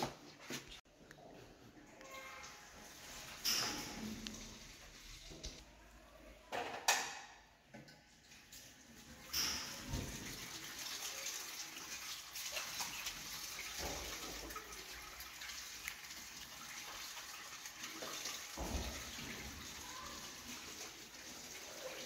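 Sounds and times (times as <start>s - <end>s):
tap water running: 2.3s - 5.6s, 7.7s - 22.0s.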